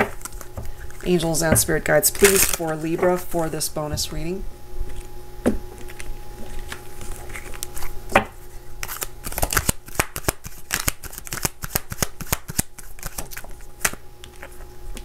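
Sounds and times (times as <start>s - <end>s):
cards being shuffled: 2.0s - 3.2s, 5.8s - 8.0s, 8.8s - 15.0s.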